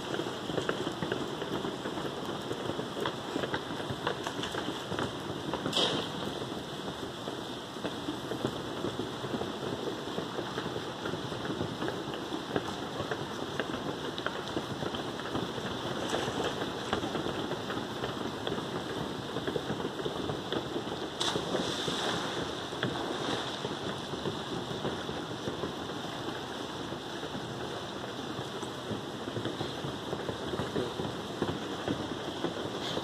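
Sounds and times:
steady hiss: 0.0 - 33.0
water washing: 21.1 - 25.4
person splashing into pool: 21.2 - 23.8.

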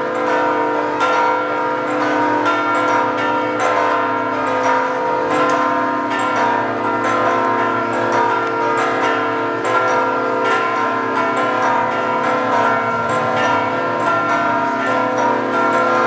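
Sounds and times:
church bells pealing: 0.0 - 16.0.

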